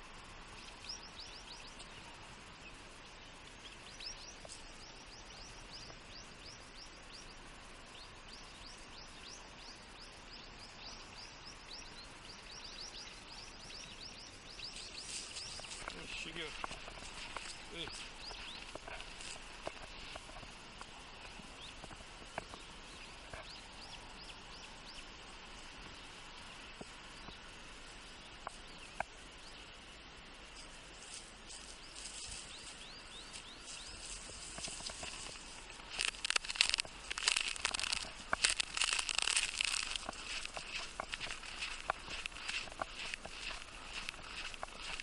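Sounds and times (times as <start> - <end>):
steady faint hiss: 0.0 - 45.0
dog rustling through dry grass: 14.6 - 21.3, 30.9 - 45.0
footsteps crunching in snow: 14.6 - 22.4, 31.0 - 45.0.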